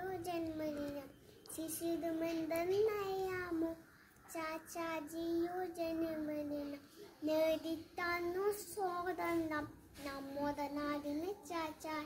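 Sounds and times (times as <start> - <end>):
girl singing: 0.0 - 12.0.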